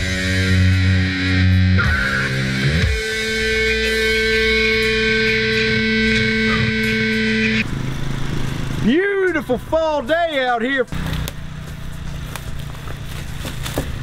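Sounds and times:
heavy metal guitar chords: 0:00.0 - 0:07.7.

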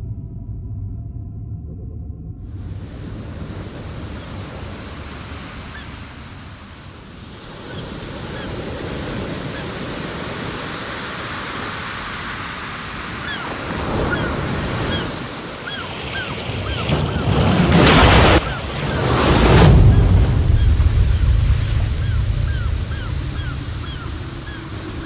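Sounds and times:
ocean waves washing: 0:02.4 - 0:25.0
wind hiss: 0:02.5 - 0:25.0
high bird cries: 0:13.2 - 0:17.3, 0:20.6 - 0:25.0.

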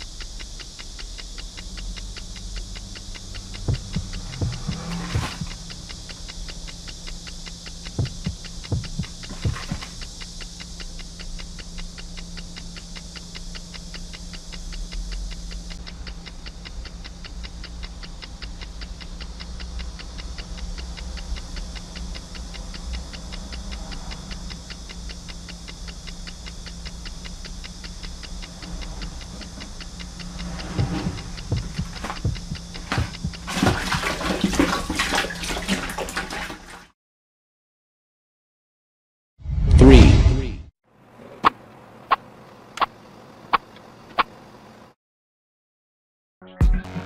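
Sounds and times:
fast even ticking: 0:00.0 - 0:36.8
steady low hum: 0:00.0 - 0:36.9
mouse scrabbling and knocking: 0:03.4 - 0:05.6, 0:08.0 - 0:10.0, 0:29.0 - 0:34.9.

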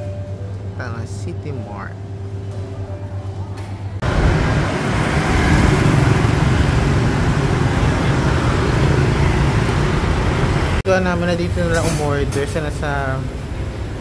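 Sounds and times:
road traffic noise: 0:03.8 - 0:14.0.

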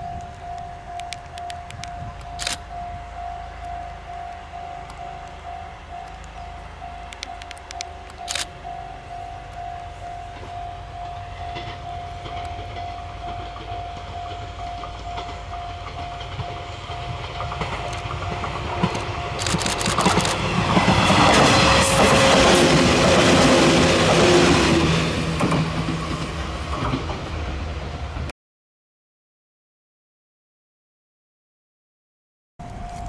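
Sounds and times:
train motor hum: 0:00.1 - 0:28.3
wheels clattering over rail joints: 0:10.2 - 0:27.6.

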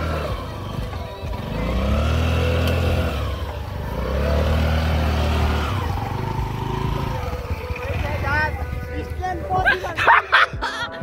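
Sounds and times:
scooter engine revving: 0:00.0 - 0:10.2.

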